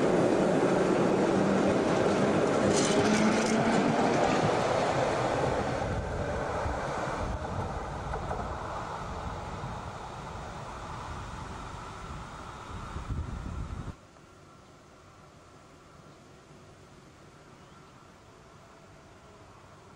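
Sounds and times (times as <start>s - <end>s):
tram wheels rumbling on rail: 0.0s - 14.0s.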